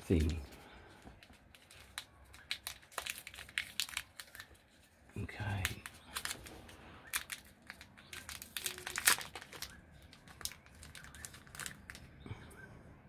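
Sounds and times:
plastic packet crinkling: 0:01.0 - 0:12.2.

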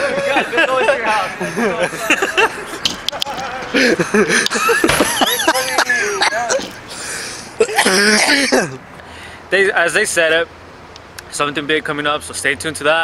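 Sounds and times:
young men talking and exclaiming: 0:00.0 - 0:13.0
harsh vocal burst: 0:05.5 - 0:08.8.

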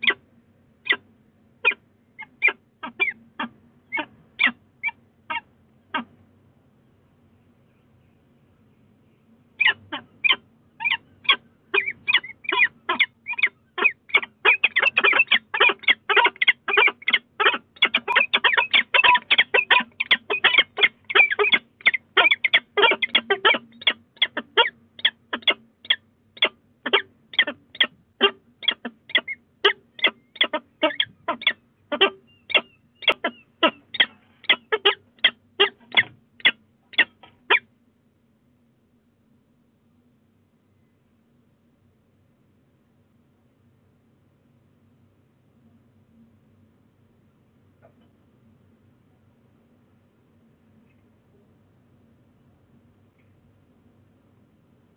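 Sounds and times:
falcons calling: 0:09.6 - 0:37.6.

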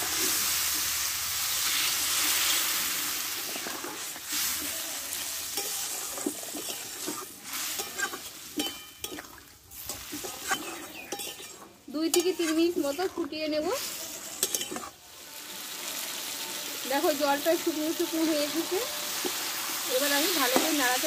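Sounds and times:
water sizzling in hot pan: 0:00.0 - 0:21.0
spatula scraping pan: 0:03.4 - 0:15.0.

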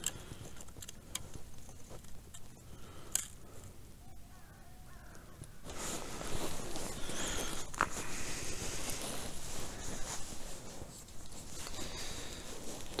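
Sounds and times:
rustling: 0:00.0 - 0:03.8, 0:04.9 - 0:13.0
faint bird calls: 0:03.7 - 0:08.3.

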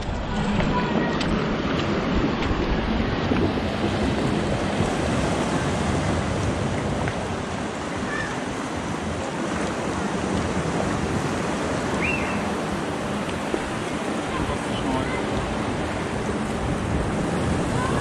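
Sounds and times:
waves washing against rocks: 0:00.0 - 0:18.0.

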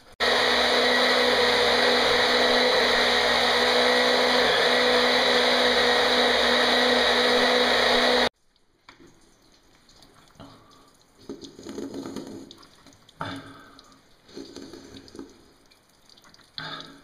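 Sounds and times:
electric motor humming: 0:00.2 - 0:08.3.

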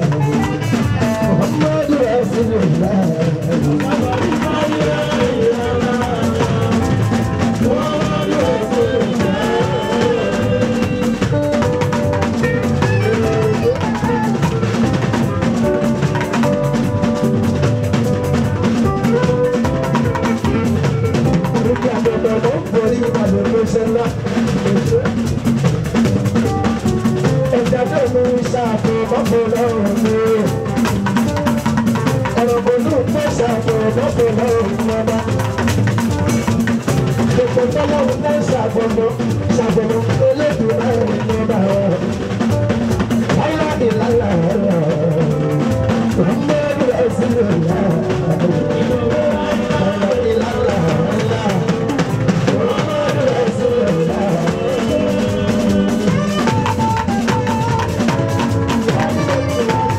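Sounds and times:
drums and percussion beat: 0:00.0 - 0:59.9
electric guitars: 0:00.0 - 0:59.9
keyboard: 0:00.0 - 0:59.9
man singing: 0:00.0 - 0:59.9.

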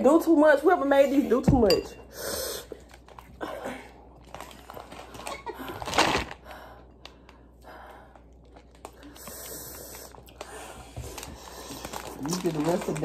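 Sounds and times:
quiet eating noises: 0:06.7 - 0:13.0.

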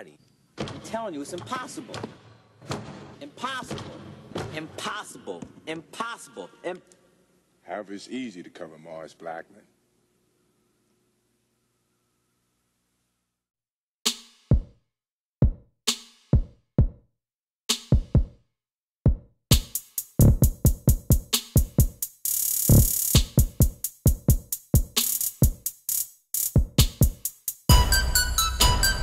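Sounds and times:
drum machine beat: 0:14.1 - 0:14.8, 0:15.4 - 0:17.0, 0:17.7 - 0:18.4, 0:19.1 - 0:29.0.

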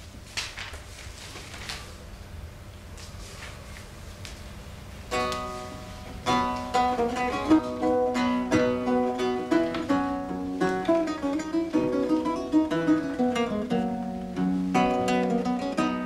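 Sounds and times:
plucked string instrument melody: 0:05.1 - 0:16.0.

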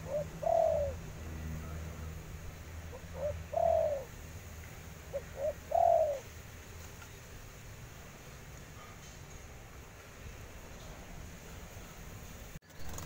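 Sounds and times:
dove cooing: 0:00.0 - 0:02.1, 0:02.9 - 0:04.2, 0:05.0 - 0:06.3.

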